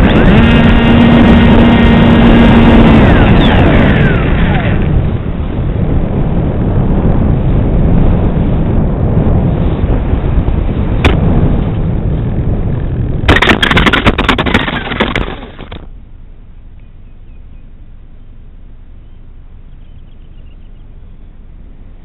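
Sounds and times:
wind rush: 0:00.0 - 0:15.9
vehicle tumbling over gravel: 0:13.1 - 0:15.9.

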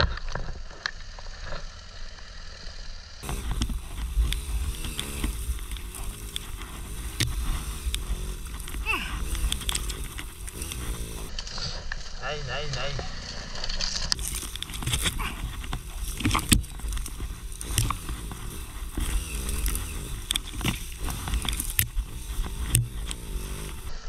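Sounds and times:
motorcycle engine revving: 0:03.2 - 0:11.5, 0:12.9 - 0:24.0
knocks and rattles: 0:13.9 - 0:23.9.

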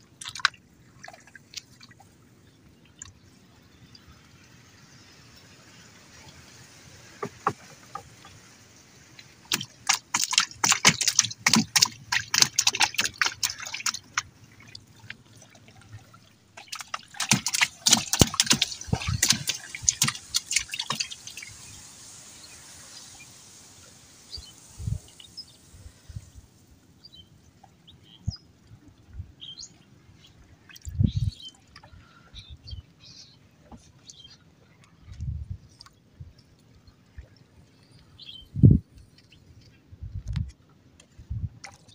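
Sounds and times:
water splashing: 0:00.0 - 0:28.8
water dripping: 0:09.1 - 0:26.0.

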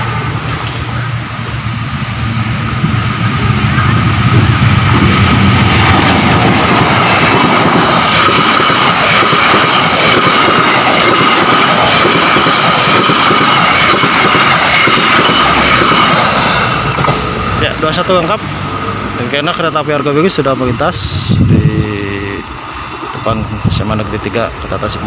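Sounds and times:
train wheels clattering on rails: 0:02.6 - 0:20.9.

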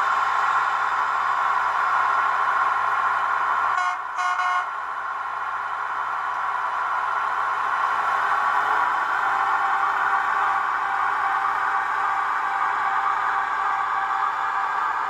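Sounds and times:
diesel engine sound: 0:00.0 - 0:15.0
short horn toots: 0:03.8 - 0:04.7.

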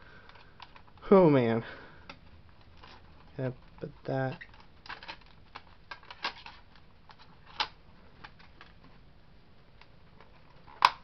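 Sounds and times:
plastic disc case clicks: 0:04.3 - 0:08.8, 0:10.3 - 0:11.0.

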